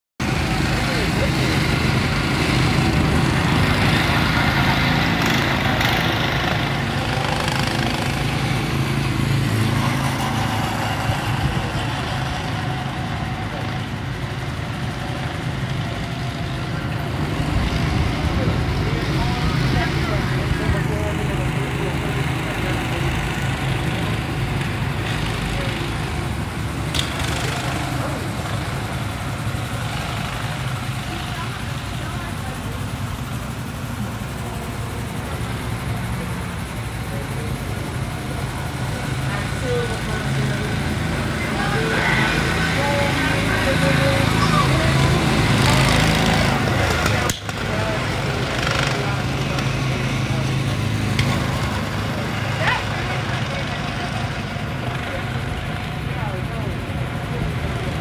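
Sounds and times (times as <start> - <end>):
go-kart engines running: 0.2 - 58.0.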